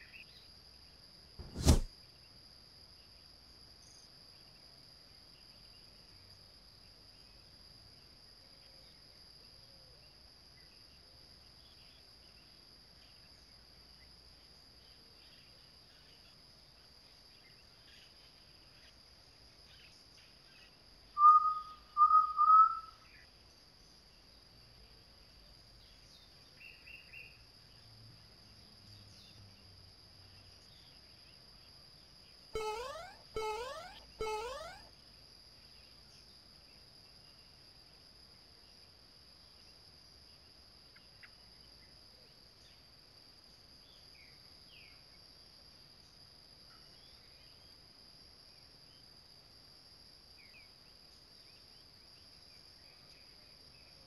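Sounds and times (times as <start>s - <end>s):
faint higher chirps: 32.6s - 34.9s
faint steady high whine: 32.6s - 34.9s.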